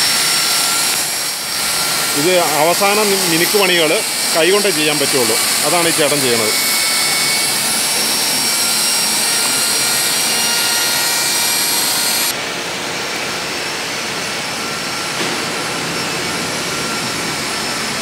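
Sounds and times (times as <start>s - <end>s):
die grinder whining: 0.0s - 12.4s.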